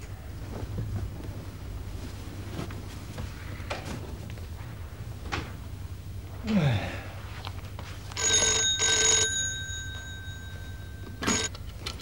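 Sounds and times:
telephone ringing: 8.1s - 11.6s.

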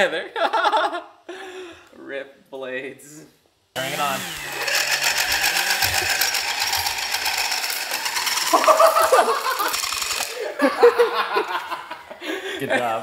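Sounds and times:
rotary tool chopping whir: 3.8s - 10.4s.

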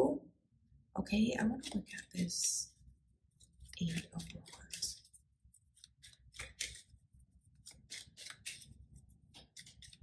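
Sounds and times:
cards snapping and sliding: 5.8s - 7.0s, 7.6s - 8.8s.

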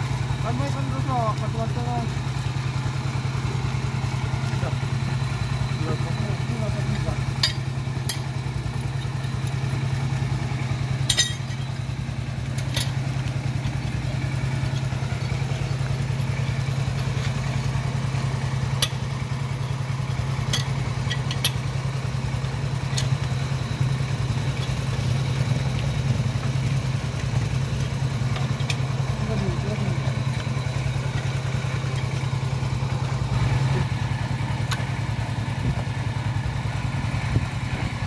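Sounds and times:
engine idling: 0.0s - 38.0s
wrench clinking on steel tube: 7.4s - 8.3s, 11.0s - 11.7s, 20.4s - 21.7s.

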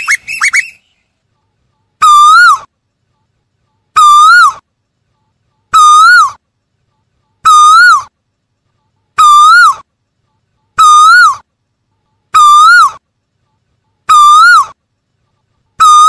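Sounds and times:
bird calling: 0.0s - 1.1s, 3.9s - 4.6s, 5.7s - 6.4s, 7.4s - 8.1s, 9.2s - 9.9s, 10.7s - 11.4s, 12.3s - 13.0s, 14.1s - 14.8s.

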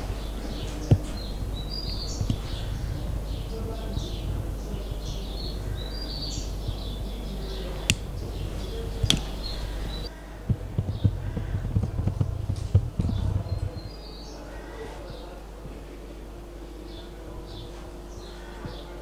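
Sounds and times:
low rumbling bumps on microphone: 0.0s - 15.8s
small birds chirping: 0.0s - 19.0s
steady low hum: 0.0s - 19.0s
sharp clicks: 0.6s - 10.1s.

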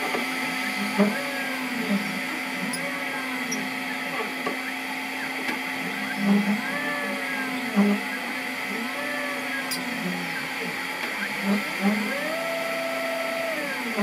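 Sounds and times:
steady hum: 0.0s - 14.0s
stepper motors whining: 0.0s - 14.0s.

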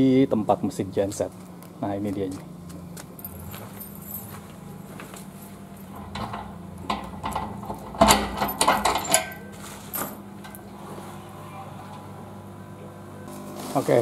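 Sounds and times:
steady low hum: 0.0s - 14.0s
metal cabinet door opening: 5.9s - 9.4s.

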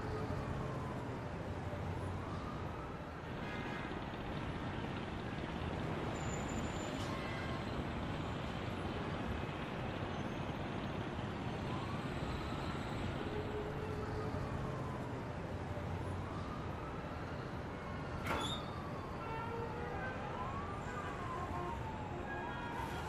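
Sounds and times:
distant siren: 0.0s - 4.3s, 10.3s - 23.0s
traffic hum: 0.0s - 23.0s.

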